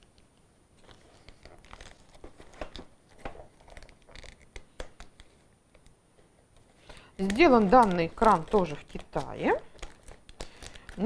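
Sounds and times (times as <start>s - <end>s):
plastic wrap crinkling and tearing: 0.8s - 5.4s, 7.2s - 11.0s.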